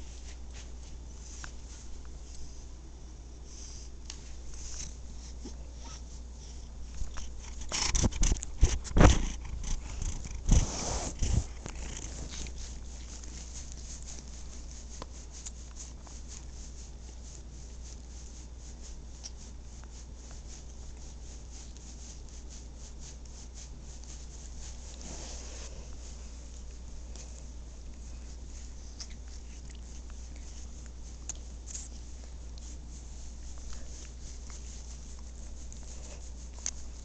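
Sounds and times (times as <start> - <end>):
cat purring: 6.8 - 15.3.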